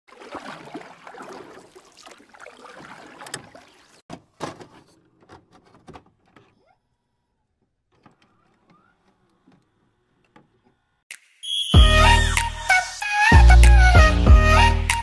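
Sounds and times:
water over shallow sea: 0:00.1 - 0:04.1.

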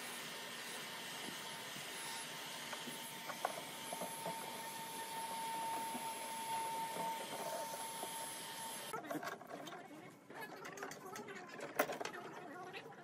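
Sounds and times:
heat gun blowing with whine: 0:00.0 - 0:08.9.

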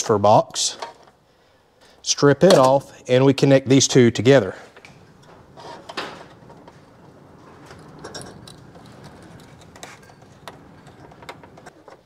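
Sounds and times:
wire handling clicks and scrapes: 0:04.6 - 0:12.0.

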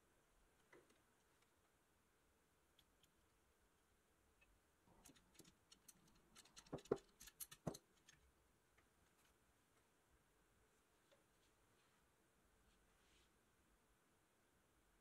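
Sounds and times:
screw clamp clicking on metal: 0:05.0 - 0:08.2.

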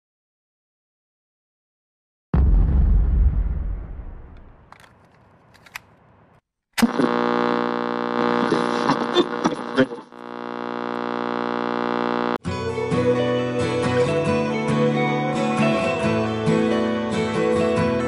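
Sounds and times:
deep boom: 0:02.3 - 0:04.7
sudden hit: 0:02.3 - 0:04.7
crackles and clicks: 0:06.8 - 0:12.4.

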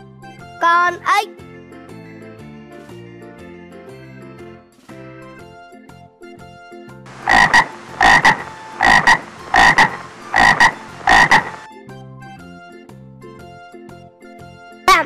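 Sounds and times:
light background music: 0:00.0 - 0:15.0
frog croaking: 0:07.1 - 0:11.7.

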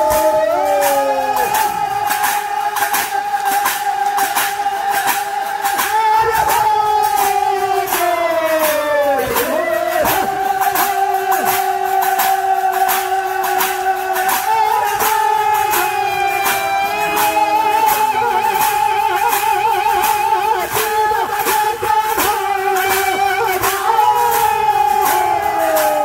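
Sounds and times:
hand cymbals struck: 0:00.0 - 0:26.0
voices singing held notes: 0:00.0 - 0:26.0.

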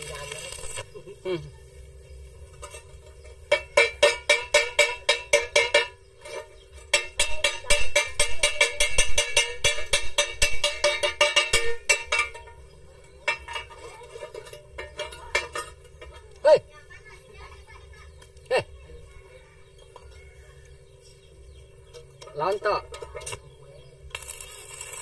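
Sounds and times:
chipping hammer rapping on metal: 0:06.9 - 0:12.4.

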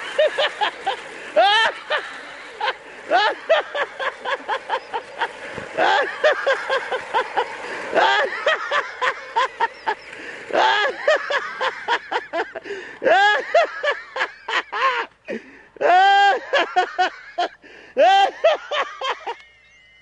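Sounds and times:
people laughing: 0:00.0 - 0:19.4
long drawn-out shout: 0:10.5 - 0:11.1, 0:15.8 - 0:16.4, 0:18.0 - 0:18.6.

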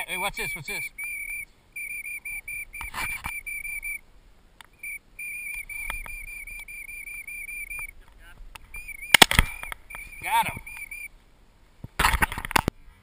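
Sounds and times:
high whistle-like tone pulses: 0:00.2 - 0:04.0, 0:04.8 - 0:08.0, 0:08.7 - 0:11.1.

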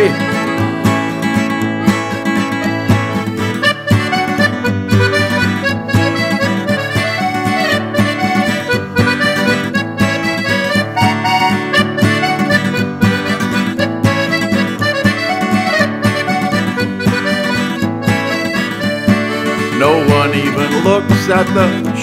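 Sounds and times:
accordion melody: 0:00.0 - 0:22.0
acoustic guitar strumming: 0:00.0 - 0:22.0.

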